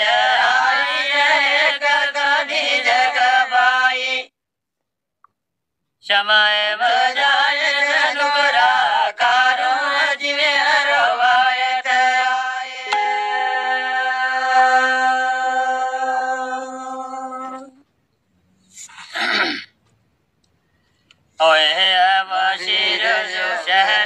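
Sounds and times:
man singing unaccompanied folk song: 6.0 - 17.8, 21.4 - 24.0.

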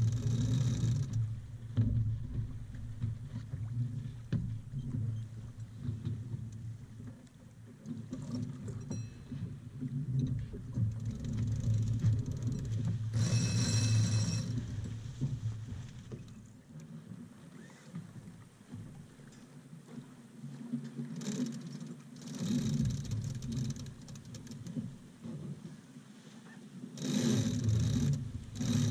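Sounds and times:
water rushing along a hull: 0.0 - 28.9
rasping whir: 11.0 - 14.6.

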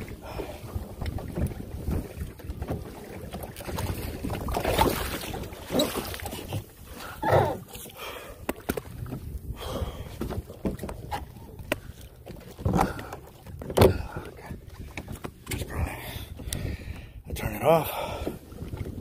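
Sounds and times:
wind buffeting microphone: 0.0 - 7.7, 12.6 - 19.0
water splashing around kayak: 0.0 - 19.0.

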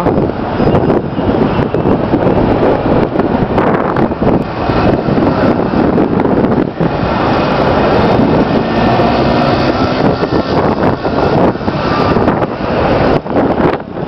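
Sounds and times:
rushing noise of city square: 0.0 - 14.0
wind buffeting microphone: 0.0 - 14.0.

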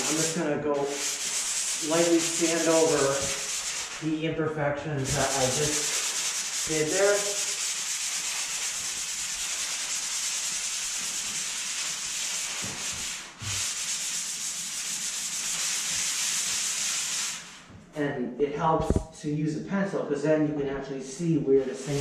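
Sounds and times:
sanding sponge scratching: 0.0 - 4.2, 5.0 - 17.6, 21.6 - 22.0.

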